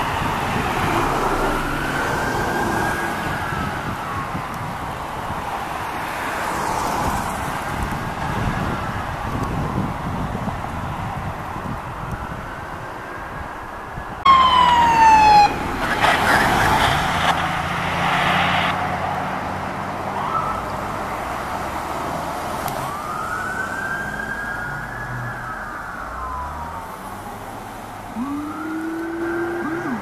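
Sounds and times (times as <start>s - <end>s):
emergency vehicle siren: 0.0s - 7.6s, 13.9s - 19.1s, 20.0s - 21.9s, 22.5s - 30.0s
rushing vehicle noise: 0.0s - 30.0s.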